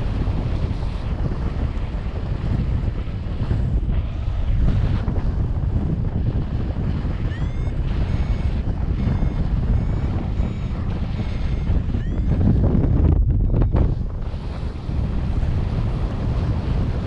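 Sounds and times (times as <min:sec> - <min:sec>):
wind rushing over microphone: 0:00.0 - 0:17.0
variometer beeps: 0:06.8 - 0:14.4.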